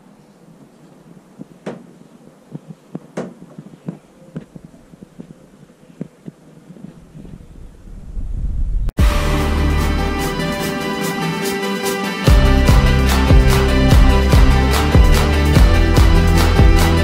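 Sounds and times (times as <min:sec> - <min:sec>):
faint steady background noise: 0:00.0 - 0:07.8.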